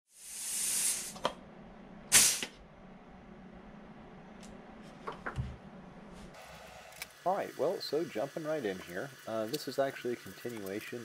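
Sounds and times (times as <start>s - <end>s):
loud burst of air: 0.1s - 1.2s, 2.1s - 2.6s
pneumatic rivet squeezer hissing: 0.2s - 1.3s, 2.1s - 2.5s.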